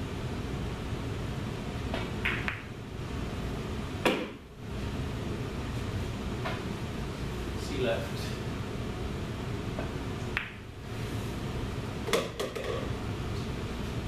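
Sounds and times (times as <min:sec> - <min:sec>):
room hum: 0:00.0 - 0:14.0
cue and ball clicks: 0:01.9 - 0:02.7, 0:04.0 - 0:04.4, 0:09.8 - 0:10.6
pool ball clack: 0:01.9 - 0:02.7, 0:04.0 - 0:04.4, 0:09.8 - 0:10.6, 0:12.0 - 0:12.9.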